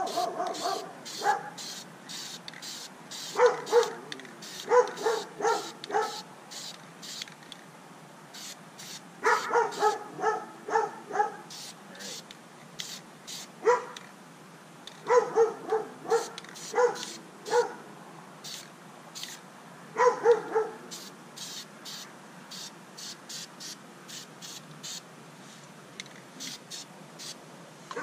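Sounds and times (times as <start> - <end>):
dog barking: 0.0 - 1.6, 3.4 - 4.0, 4.7 - 6.2, 9.2 - 11.5, 13.6 - 14.0, 15.0 - 17.8, 20.0 - 20.8
spray paint can hissing: 0.0 - 7.4, 8.3 - 9.9, 11.5 - 13.6, 16.2 - 17.2, 18.4 - 19.4, 20.9 - 25.0, 26.4 - 27.4.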